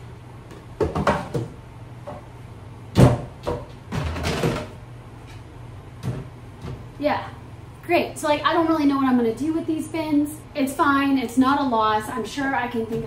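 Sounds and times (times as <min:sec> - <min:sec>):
plastic bin knocking on wooden cabinet: 0:00.8 - 0:01.6.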